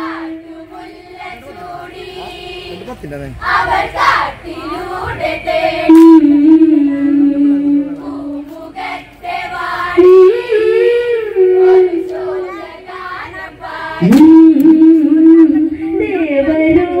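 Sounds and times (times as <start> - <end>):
women singing folk song: 3.5 - 14.2.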